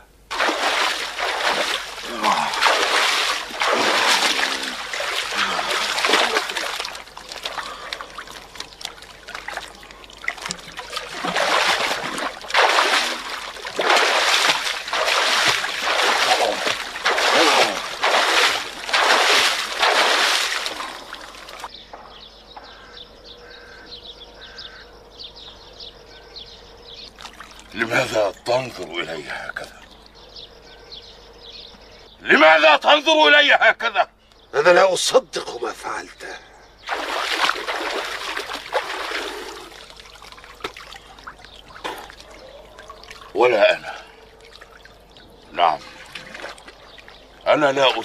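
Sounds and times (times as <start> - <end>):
water splashing from a jug: 0.3 - 21.7, 27.2 - 27.8, 36.8 - 48.0.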